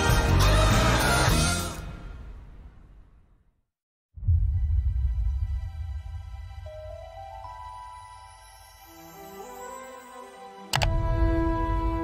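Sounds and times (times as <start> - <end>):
soft trailer music: 4.2 - 12.0.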